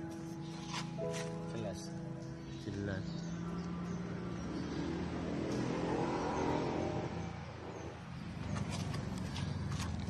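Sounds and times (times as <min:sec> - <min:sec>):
vehicle engine: 0:03.0 - 0:10.0.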